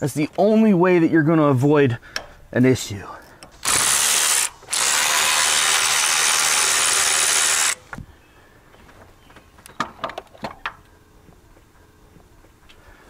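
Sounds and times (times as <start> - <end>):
electric ratchet spinning bolt: 3.6 - 7.9.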